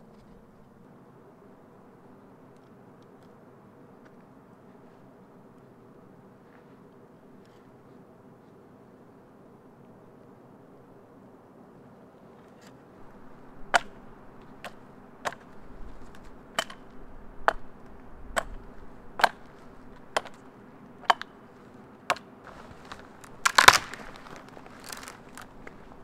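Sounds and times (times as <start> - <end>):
hatchet chopping branches: 13.7 - 21.4, 22.0 - 26.0.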